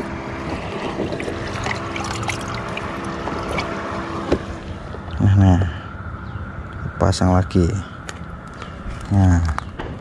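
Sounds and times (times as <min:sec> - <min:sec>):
steady low hum: 0:00.0 - 0:10.0
water splashing in bucket: 0:00.6 - 0:03.5.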